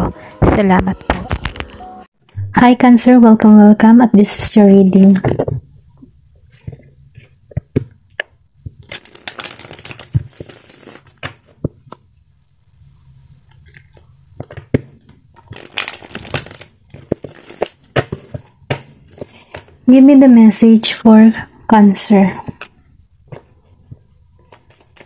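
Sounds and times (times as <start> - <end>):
cards being shuffled: 6.5 - 12.1, 13.5 - 19.8, 22.4 - 25.0.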